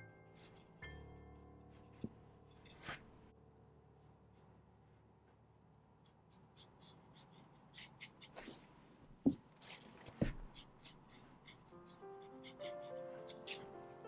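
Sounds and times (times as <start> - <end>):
brush on paper: 6.0 - 8.7, 9.6 - 14.0.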